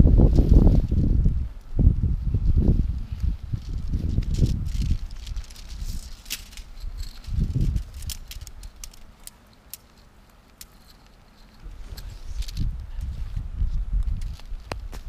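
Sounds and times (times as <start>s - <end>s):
nylon fabric rustling: 2.7s - 9.3s
tent poles clicking and rattling: 3.1s - 13.2s, 13.9s - 15.0s.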